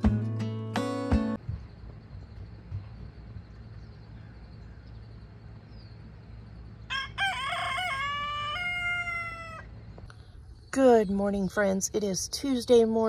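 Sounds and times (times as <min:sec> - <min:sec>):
rooster crowing: 0:06.9 - 0:09.7.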